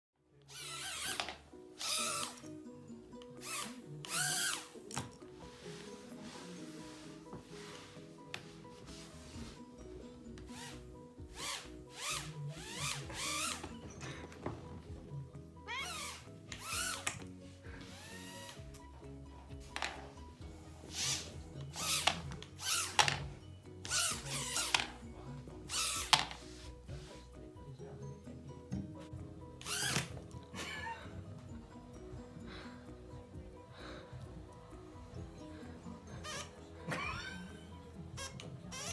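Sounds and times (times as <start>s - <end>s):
background music: 0.2s - 38.9s
toy drone motors whining: 0.5s - 2.4s, 3.4s - 4.8s, 10.5s - 13.7s, 15.8s - 17.1s, 20.9s - 23.1s, 23.9s - 24.8s, 25.7s - 26.2s, 29.6s - 30.1s.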